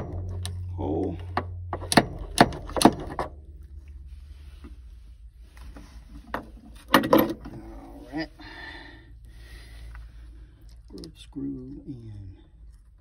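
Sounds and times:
sharp metal clicks and knocks: 0.0 - 0.7, 1.3 - 3.4
faint handling noise: 3.0 - 8.2.

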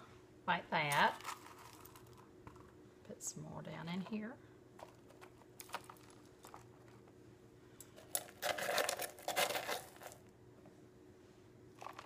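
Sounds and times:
hard candy rattling against spoon: 8.0 - 10.2.

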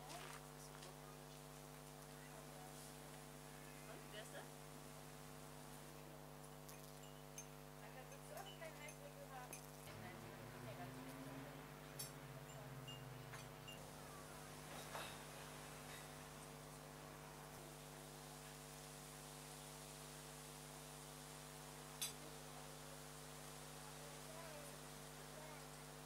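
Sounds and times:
light hiss: 14.1 - 26.0.

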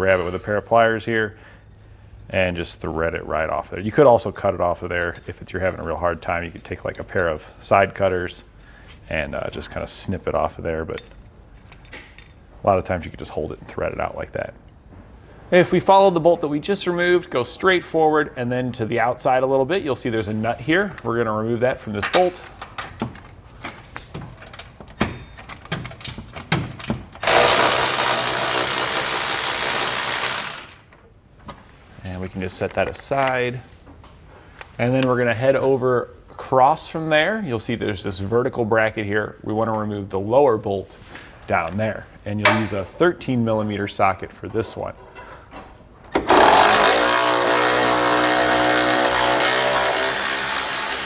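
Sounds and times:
cordless ratchet motor running: 27.2 - 30.8, 46.3 - 51.0.

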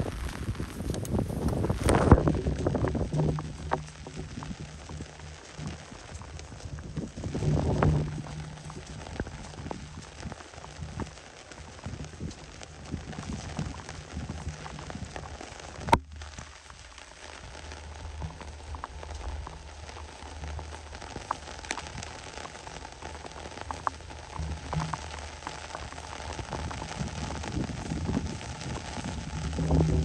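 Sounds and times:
rain pattering on grass: 0.0 - 30.0
drops tapping close by: 0.2 - 11.2, 20.4 - 30.0.

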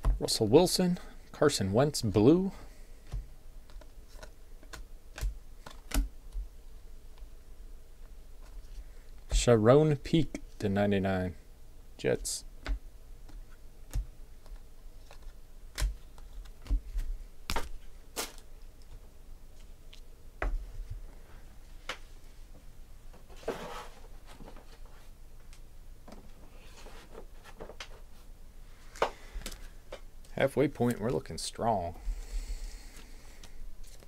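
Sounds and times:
cards rustling: 3.0 - 6.4, 13.2 - 19.0, 32.2 - 34.0.

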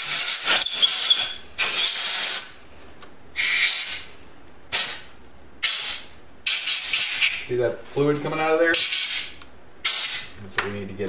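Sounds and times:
compressed air blow gun hissing: 0.0 - 2.5.

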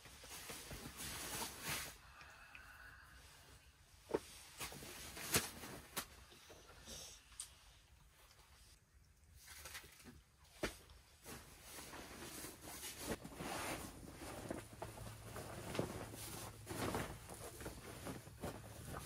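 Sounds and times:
fabric rustling and flapping: 4.1 - 6.3, 9.4 - 19.0.

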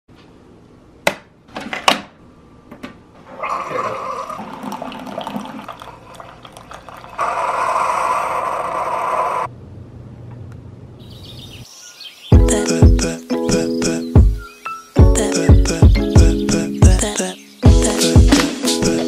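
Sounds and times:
coffee gurgling into mug: 3.5 - 7.8.

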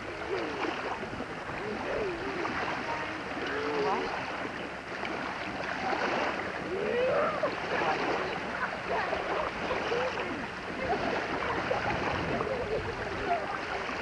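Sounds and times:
small waves washing: 0.0 - 14.0
child splashing: 5.1 - 14.0.

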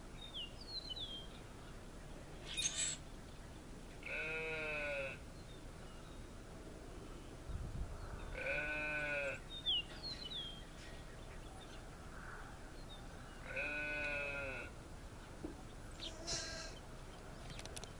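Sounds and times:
faint bird chirps: 2.4 - 3.4, 15.9 - 17.9
sheep bleating: 4.0 - 5.2, 8.3 - 9.4, 13.4 - 14.7.

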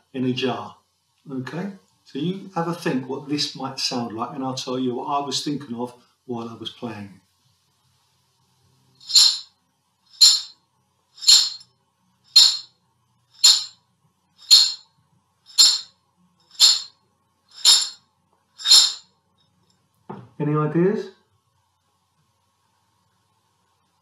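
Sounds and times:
pasta rattling in glass jar: 9.0 - 9.5, 10.1 - 10.5, 11.2 - 11.6, 12.3 - 12.7, 13.4 - 13.8, 14.4 - 14.8, 15.5 - 15.9, 16.5 - 16.9, 17.5 - 18.0, 18.6 - 19.1.

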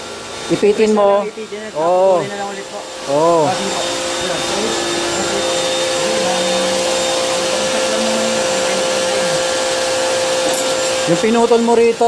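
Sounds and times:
machine whirring: 0.0 - 12.0.

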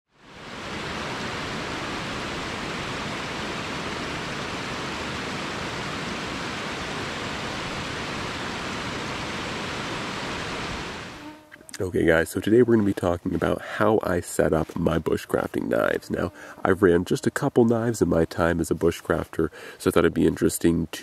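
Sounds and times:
creek cascading over rocks: 0.2 - 11.2.

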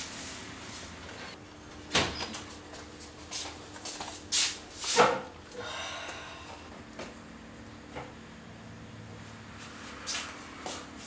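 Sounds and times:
faint steady hum: 5.3 - 9.7.

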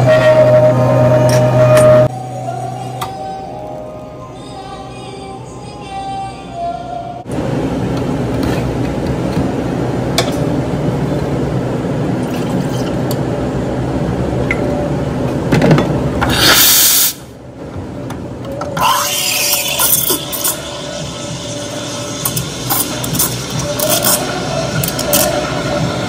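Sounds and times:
cafe machine noise: 0.0 - 26.0
steam wand burst: 16.3 - 17.2
steam wand hissing into milk: 16.3 - 17.2, 18.8 - 24.3.

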